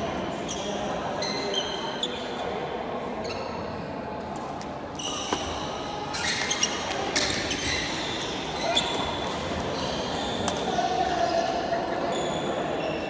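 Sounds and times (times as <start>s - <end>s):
indoor hall background: 0.0s - 13.0s
shoes squeaking on court floor: 4.9s - 13.0s.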